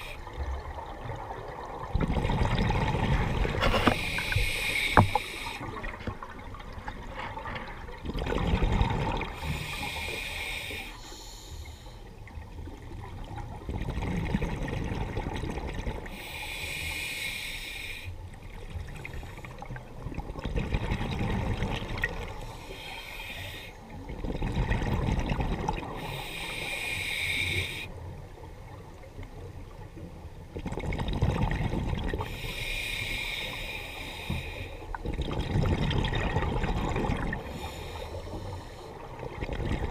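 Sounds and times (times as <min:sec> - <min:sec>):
exhaled bubbles gurgling: 0:00.0 - 0:10.2, 0:12.2 - 0:16.2, 0:18.5 - 0:22.6, 0:24.0 - 0:26.8, 0:30.5 - 0:32.9, 0:34.9 - 0:39.9
regulator hissing on inhalation: 0:03.8 - 0:05.6, 0:09.4 - 0:12.0, 0:16.1 - 0:18.1, 0:26.0 - 0:27.9, 0:32.3 - 0:34.8.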